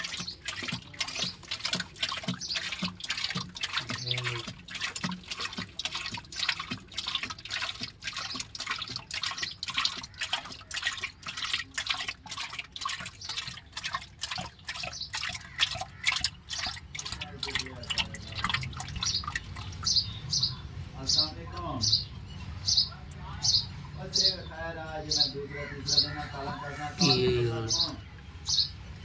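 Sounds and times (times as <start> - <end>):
oil glugging from plastic jug: 0.0 - 20.1.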